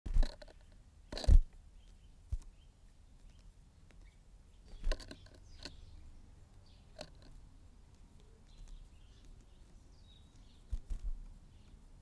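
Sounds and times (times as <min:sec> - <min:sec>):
faint bird chirps: 0:00.4 - 0:07.4, 0:08.1 - 0:12.0
bird clicking on wooden feeder: 0:04.7 - 0:05.9, 0:06.5 - 0:09.7.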